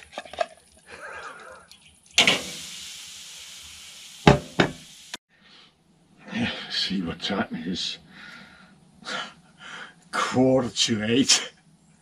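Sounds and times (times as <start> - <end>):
meat sizzling in frying pan: 2.2 - 5.2
pan or utensil knocks: 4.3 - 4.8.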